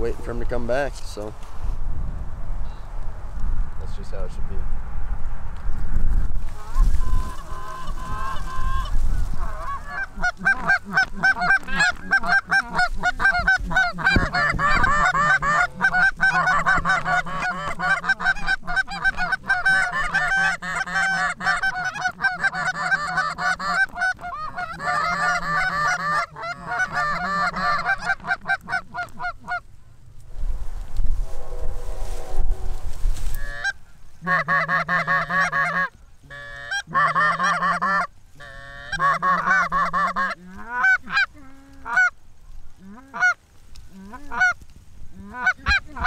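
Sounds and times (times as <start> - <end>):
goose calls honking and clucking: 6.5 - 29.7, 33.2 - 42.2, 42.8 - 46.0.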